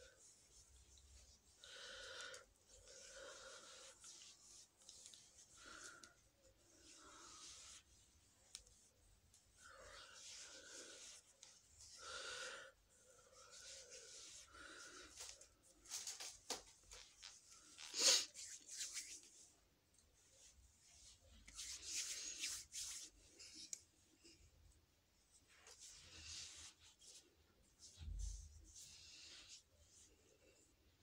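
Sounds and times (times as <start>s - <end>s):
breathing: 1.6s - 4.3s, 5.4s - 7.8s, 9.6s - 15.5s
hands rubbing and patting skin: 2.8s - 6.2s, 13.5s - 19.5s, 20.4s - 23.9s.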